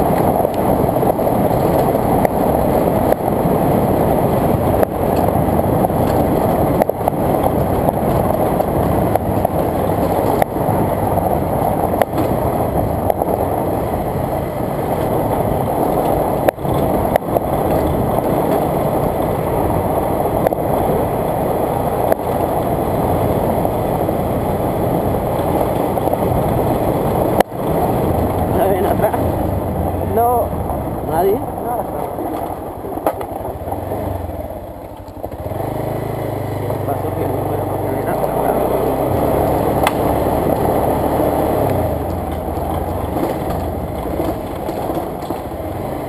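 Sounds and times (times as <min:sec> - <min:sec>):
wind rushing over microphone: 0:00.0 - 0:34.6
motorcycle engine rumble: 0:00.0 - 0:46.0
tyres on gravel: 0:00.0 - 0:46.0.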